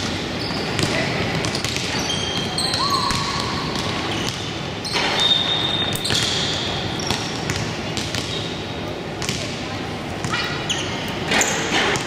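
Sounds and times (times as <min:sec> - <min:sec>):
basketball bouncing: 0:00.0 - 0:05.2, 0:05.9 - 0:08.4
sneakers squeaking on court: 0:00.0 - 0:09.6, 0:10.2 - 0:12.0.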